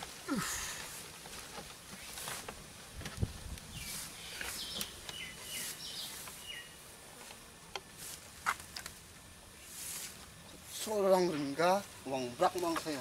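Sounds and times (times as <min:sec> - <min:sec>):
bird chirps: 0:03.7 - 0:06.8.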